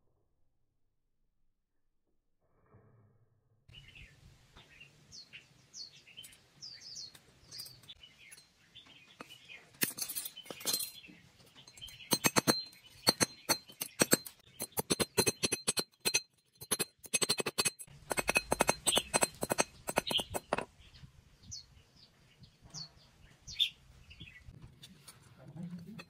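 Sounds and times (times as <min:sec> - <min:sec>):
hammer striking steel on anvil: 0:11.8 - 0:20.6.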